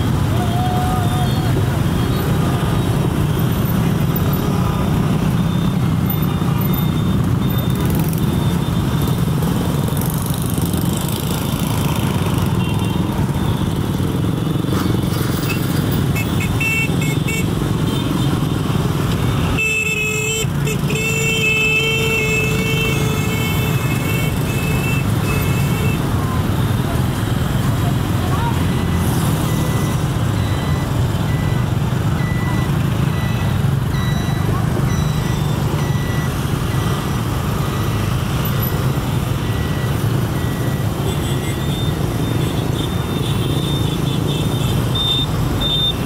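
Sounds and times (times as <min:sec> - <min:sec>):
motorbikes: 0:00.0 - 0:46.0
street traffic rumble: 0:00.0 - 0:46.0.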